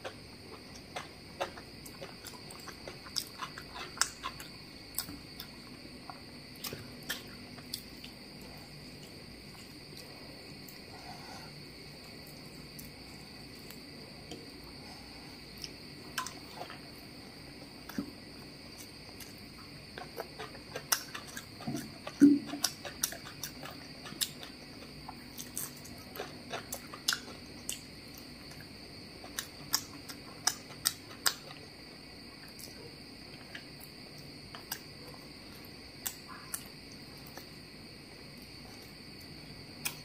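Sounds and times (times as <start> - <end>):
person chewing: 0.0 - 11.5, 18.7 - 28.6, 29.2 - 31.7
steady high-pitched whine: 0.0 - 40.0.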